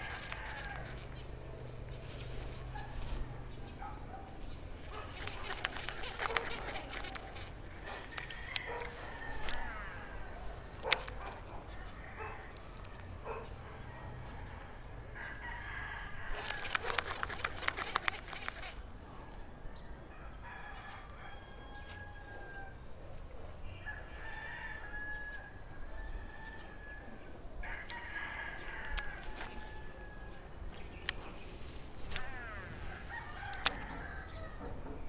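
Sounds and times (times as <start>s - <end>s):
rooster crowing: 0.0s - 1.0s, 7.8s - 10.4s, 13.8s - 18.4s, 19.7s - 22.8s, 23.8s - 30.5s, 32.2s - 34.8s
rapid clicking: 4.8s - 10.1s, 16.4s - 18.8s.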